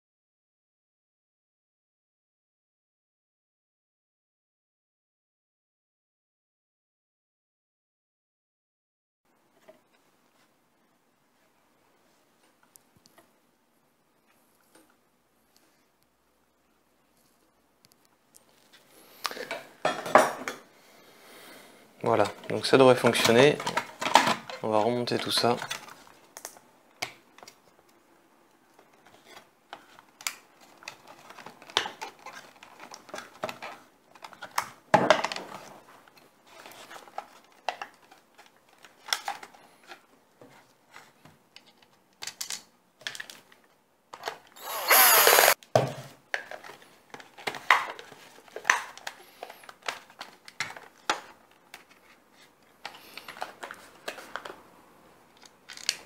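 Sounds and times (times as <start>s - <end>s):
plastic clicks and rattles: 41.6s - 44.5s, 55.4s - 56.0s
short vacuum motor whir: 44.6s - 45.6s.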